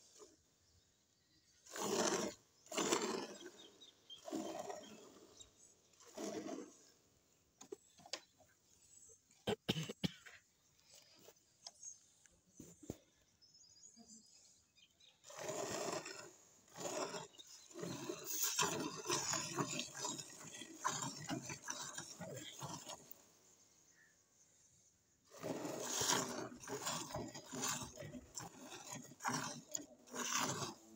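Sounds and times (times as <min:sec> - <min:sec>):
milk squirting into steel bucket: 0:15.3 - 0:23.2, 0:25.3 - 0:30.9.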